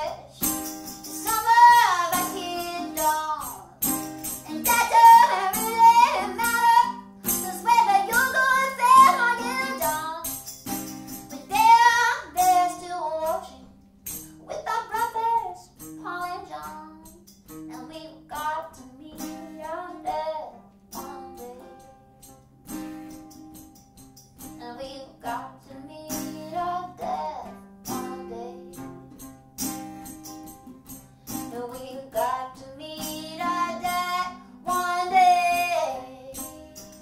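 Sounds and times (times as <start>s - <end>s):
woman singing: 0.0s - 10.4s, 11.3s - 21.9s, 24.4s - 28.9s, 31.3s - 37.0s
guitar strumming: 0.0s - 37.0s.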